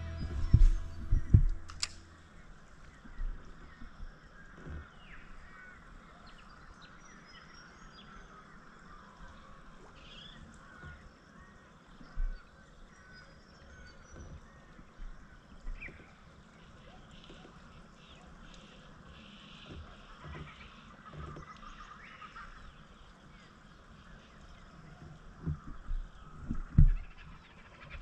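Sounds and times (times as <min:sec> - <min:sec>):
dull low thumps: 0:00.0 - 0:02.6
steady outdoor hiss: 0:00.0 - 0:28.0.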